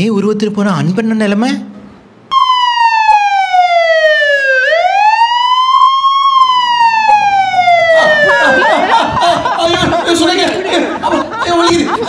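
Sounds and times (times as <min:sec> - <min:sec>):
siren-like wailing tone: 0:02.3 - 0:08.9.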